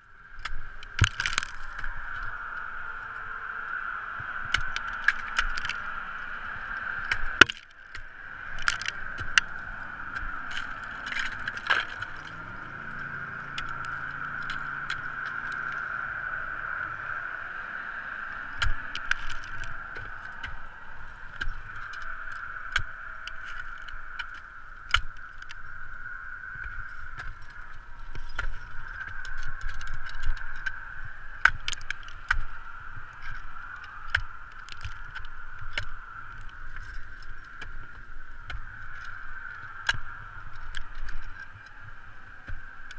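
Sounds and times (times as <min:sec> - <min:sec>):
ice axes chopping ice: 0:01.0 - 0:01.8, 0:07.1 - 0:09.5.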